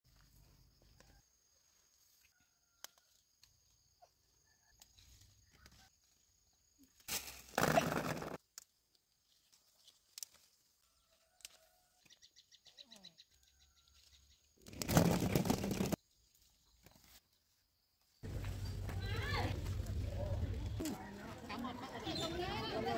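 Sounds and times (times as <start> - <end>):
fruit rustling into a woven basket: 6.8 - 12.1.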